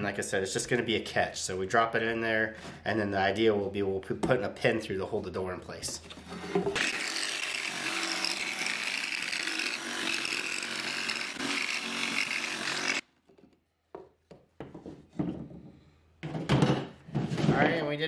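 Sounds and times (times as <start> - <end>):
jigsaw cutting board: 6.3 - 13.1.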